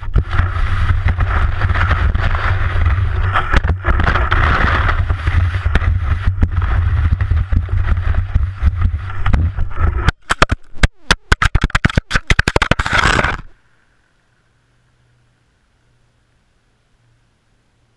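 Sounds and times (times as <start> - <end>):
skis sliding over snow: 0.0 - 10.1
wind buffeting microphone: 0.0 - 10.1
clatter of knocks and scrapes: 0.0 - 10.6, 11.3 - 13.5.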